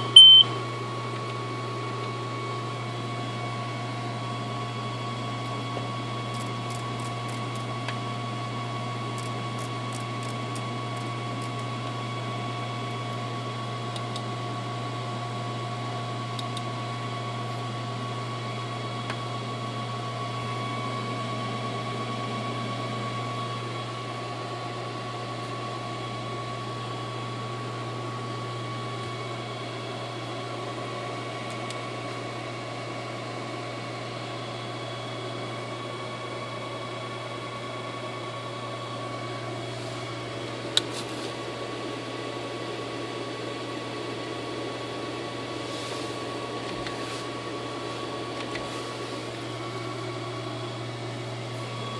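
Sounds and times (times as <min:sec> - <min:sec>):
low electrical hum: 0:00.0 - 0:00.7
whining cooling fans: 0:00.0 - 0:51.9.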